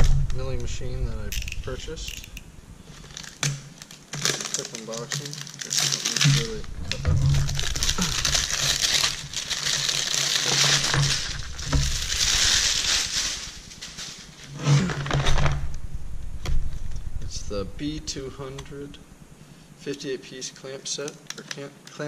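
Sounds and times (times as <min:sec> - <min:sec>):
plastic wrapping crinkling: 0:01.3 - 0:15.5.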